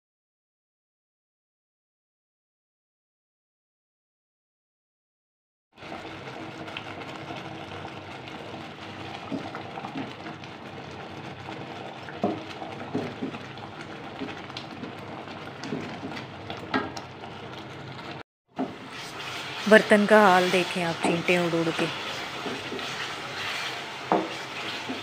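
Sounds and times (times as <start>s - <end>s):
thick liquid bubbling in pot: 5.8s - 25.0s.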